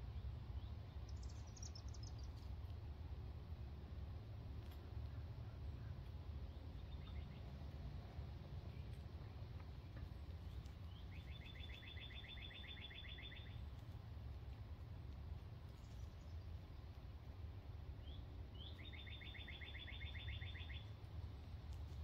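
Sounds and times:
steady low rumble: 0:00.0 - 0:22.0
songbird trilling: 0:10.9 - 0:13.6, 0:18.0 - 0:20.9.

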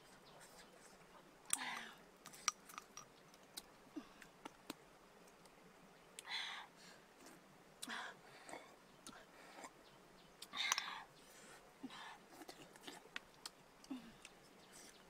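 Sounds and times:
snail shells clicking and knocking: 0:01.5 - 0:03.7, 0:10.4 - 0:11.0.

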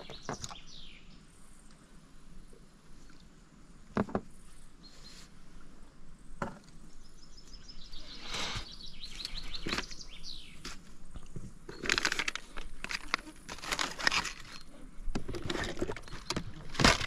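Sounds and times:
lures rattling in plastic box: 0:11.7 - 0:14.6.

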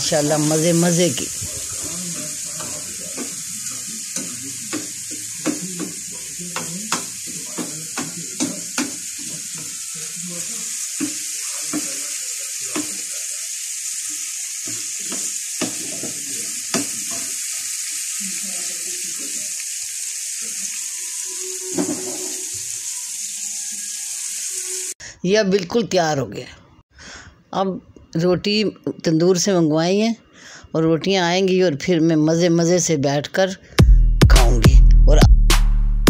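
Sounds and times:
vegetables sizzling in frying pan: 0:00.0 - 0:25.0.

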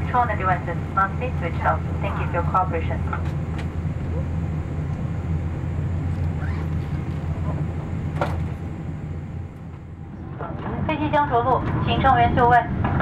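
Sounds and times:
airplane cabin low rumble: 0:00.0 - 0:13.0.

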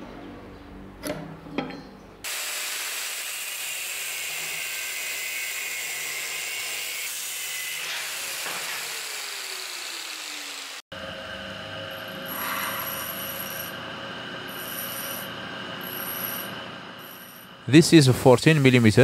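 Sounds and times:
angle grinder cutting steel: 0:02.2 - 0:17.6.

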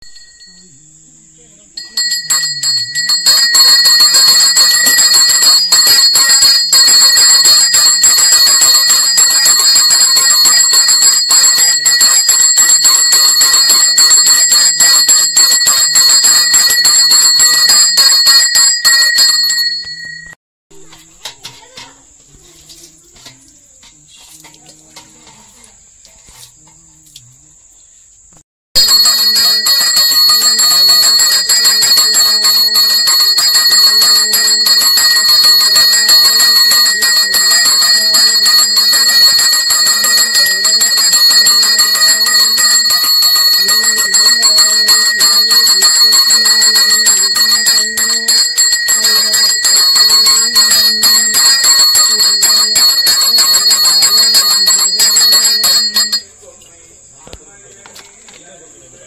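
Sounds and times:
temple bells ringing rapidly: 0:01.8 - 0:20.4, 0:28.8 - 0:56.3.

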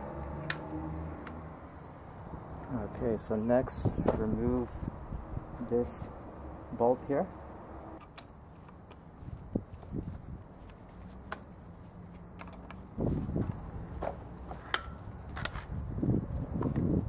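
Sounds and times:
parts handling and rustling: 0:08.0 - 0:15.9.

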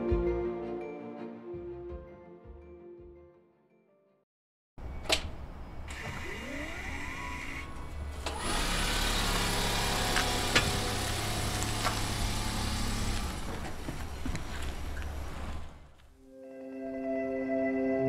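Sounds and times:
car running hum: 0:07.6 - 0:16.2.

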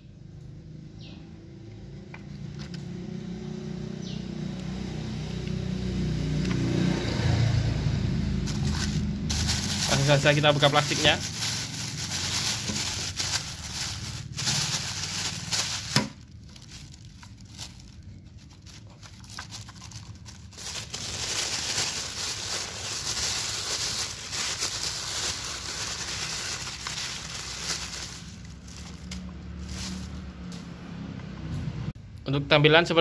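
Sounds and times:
plastic bag crinkling: 0:08.2 - 0:30.3.

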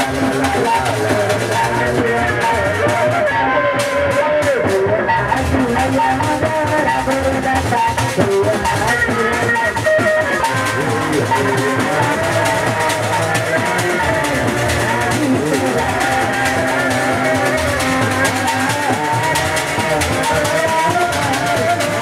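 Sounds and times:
hand drums beating: 0:00.0 - 0:22.0
wavering melody: 0:05.0 - 0:22.0.

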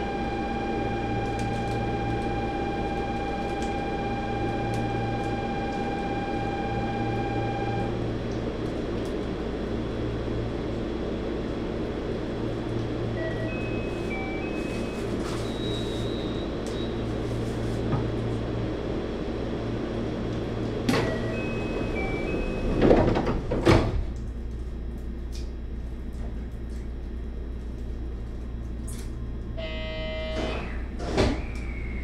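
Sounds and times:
buzzing tone: 0:00.0 - 0:07.9, 0:29.6 - 0:30.9
electric train humming: 0:00.0 - 0:08.0, 0:11.7 - 0:15.3, 0:18.4 - 0:23.4.

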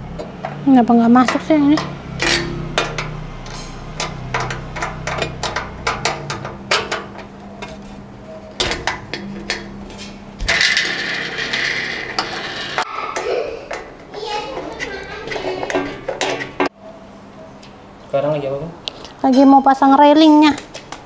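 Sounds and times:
metal frame parts clicking and knocking: 0:00.1 - 0:16.7.

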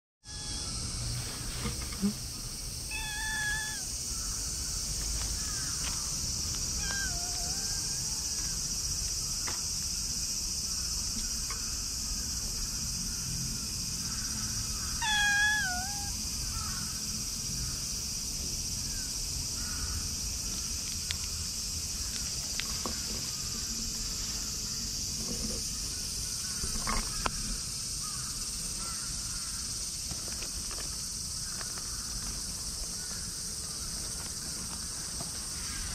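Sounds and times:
cat meowing: 0:00.2 - 0:00.9, 0:02.9 - 0:04.0, 0:06.7 - 0:08.4, 0:15.0 - 0:16.2
insect chirring: 0:00.2 - 0:35.9.

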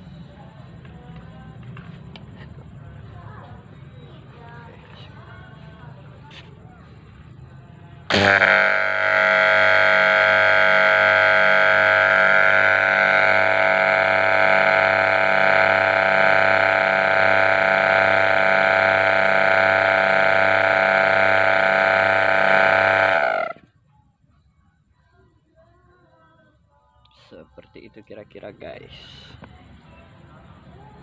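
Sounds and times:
vacuum pump humming: 0:08.1 - 0:23.6.

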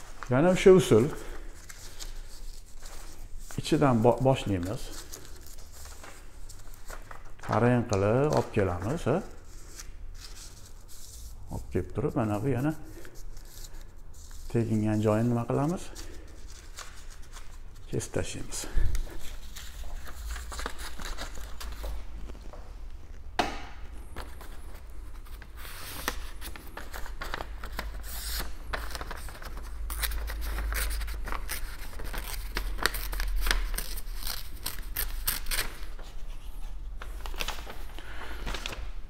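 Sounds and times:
paper crinkling: 0:00.0 - 0:22.6, 0:24.0 - 0:39.0
paper tearing: 0:25.6 - 0:36.1.

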